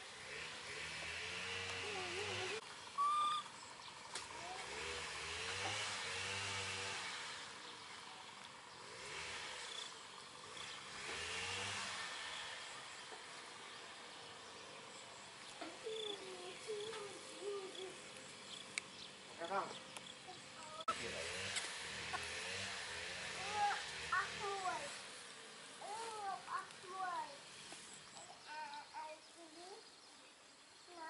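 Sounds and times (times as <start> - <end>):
baby monkeys cooing: 15.7 - 18.0.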